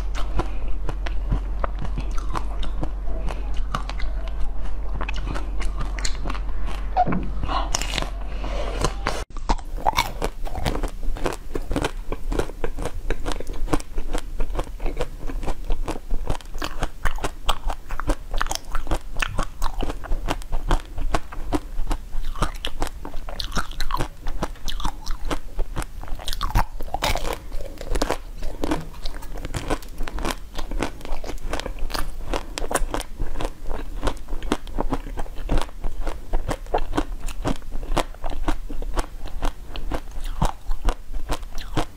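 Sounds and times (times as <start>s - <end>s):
chewing: 0.0s - 7.0s, 8.8s - 41.9s
crunching hard candy coating: 9.1s - 41.9s.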